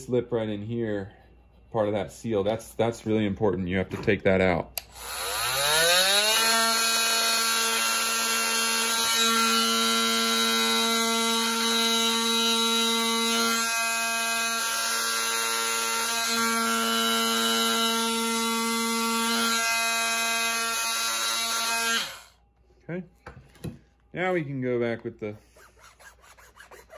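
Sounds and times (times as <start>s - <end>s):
oscillating multi-tool buzzing: 4.9s - 22.3s.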